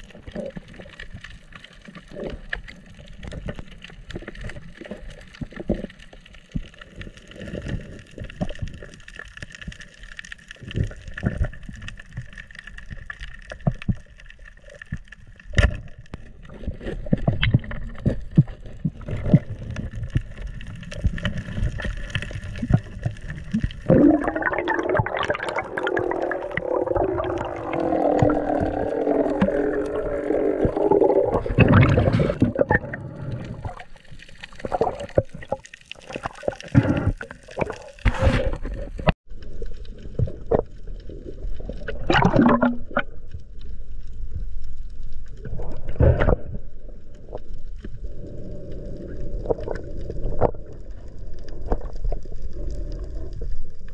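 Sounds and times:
bubbles gurgling: 0:16.3 - 0:43.4, 0:45.4 - 0:53.9.

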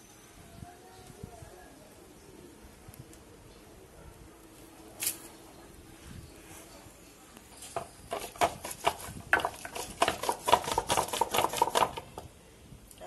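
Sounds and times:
stone scraping on grinding stone: 0:07.6 - 0:11.9.

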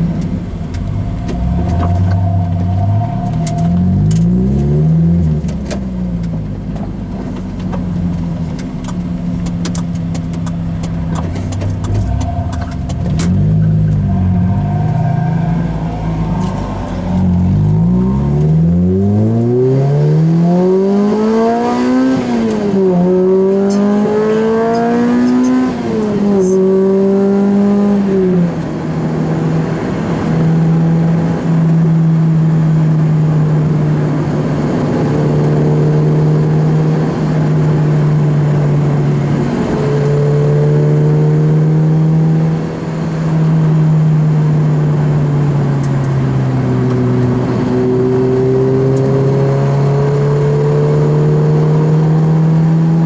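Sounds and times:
car engine accelerating: 0:00.0 - 0:53.0.

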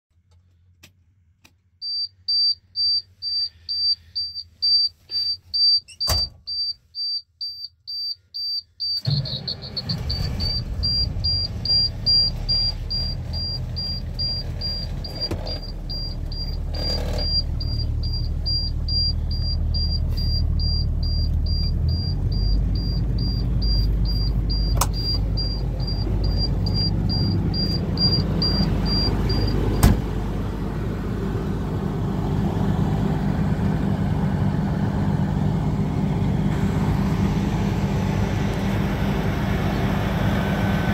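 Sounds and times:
warning buzzer beeping: 0:01.9 - 0:29.6
diesel engine starting and idling: 0:08.8 - 0:40.9.

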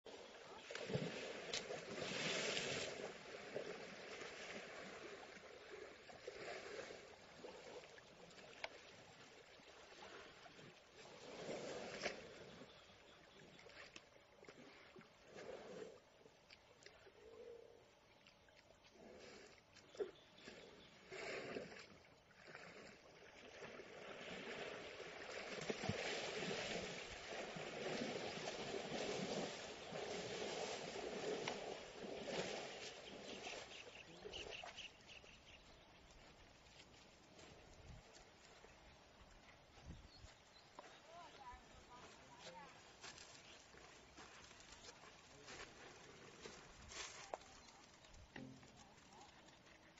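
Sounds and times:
elephants splashing in water: 0:00.1 - 0:16.4, 0:18.9 - 0:37.9.

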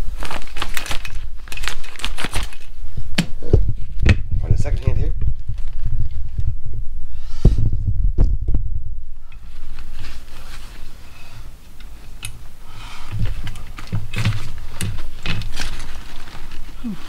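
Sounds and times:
fabric rustling: 0:00.0 - 0:06.9, 0:07.8 - 0:17.0
low thumping handling noise: 0:02.9 - 0:11.0.

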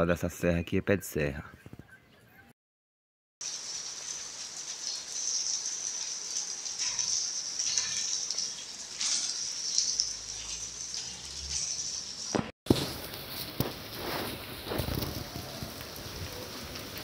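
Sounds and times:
rain falling: 0:03.4 - 0:17.0.

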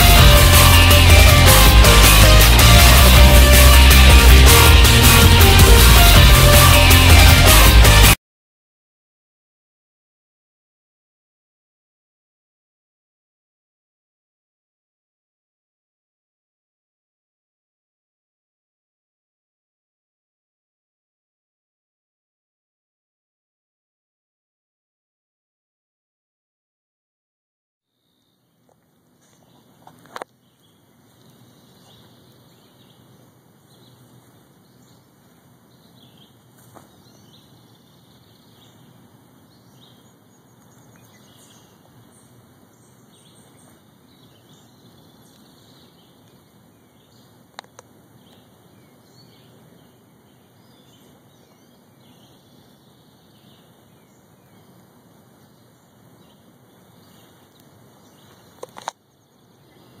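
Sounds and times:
distant birds chirping: 0:27.9 - 1:00.0
steady low hiss: 0:28.0 - 1:00.0.

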